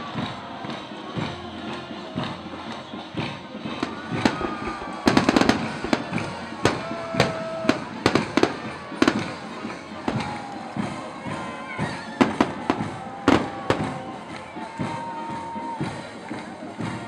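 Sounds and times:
fireworks bursting: 0:03.7 - 0:11.0, 0:12.2 - 0:14.8.

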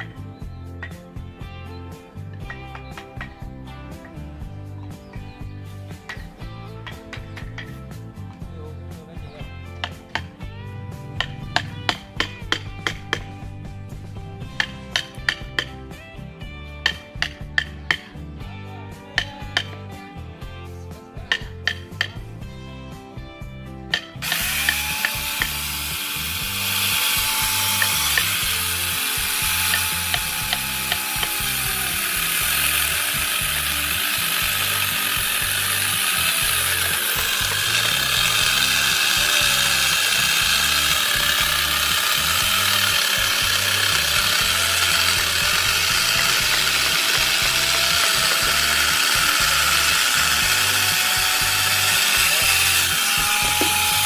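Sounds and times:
power tool grinding wood: 0:09.6 - 0:13.3, 0:24.0 - 0:54.0.

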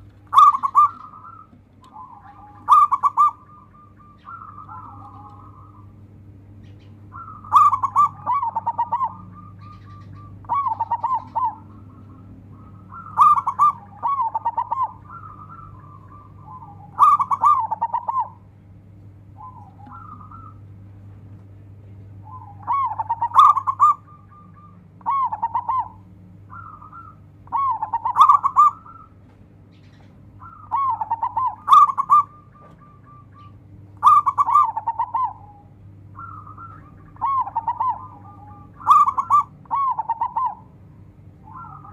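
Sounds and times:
dove cooing: 0:00.0 - 0:21.0, 0:21.8 - 0:41.9
steady low hum: 0:00.0 - 0:41.9.

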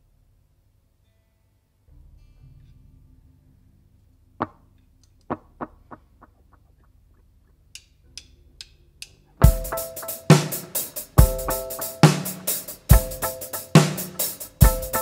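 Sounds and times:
drumstick clicks: 0:07.7 - 0:09.2
amp hum: 0:09.4 - 0:15.0
drum knock: 0:09.4 - 0:15.0.

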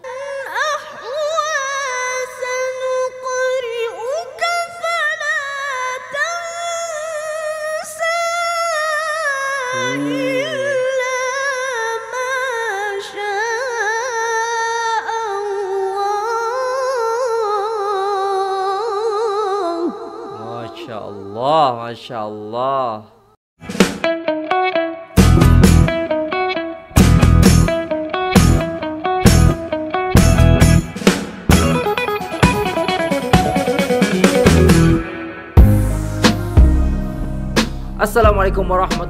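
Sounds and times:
child reciting in melismatic voice: 0:09.4 - 0:23.3.

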